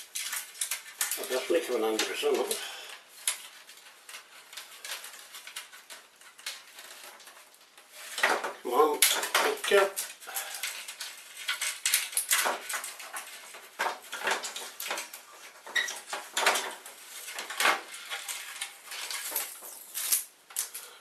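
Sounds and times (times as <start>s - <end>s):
plastic parts clattering and clicking: 0.0s - 20.9s.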